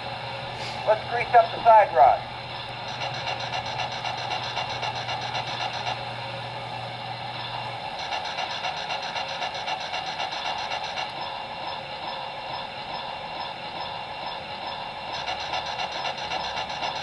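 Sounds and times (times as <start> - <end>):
pulsing steam hiss from speaker: 0.0 - 2.3.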